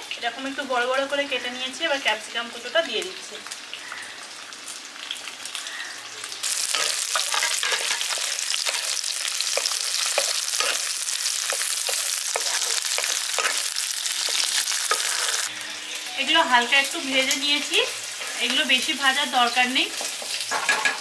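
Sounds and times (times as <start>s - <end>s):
vegetables sizzling in oil: 0.0s - 21.0s.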